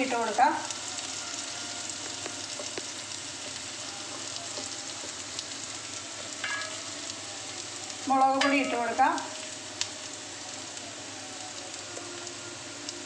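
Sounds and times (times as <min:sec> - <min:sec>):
onions sizzling in hot oil: 0:00.0 - 0:13.0
faint crackles: 0:00.6 - 0:06.4.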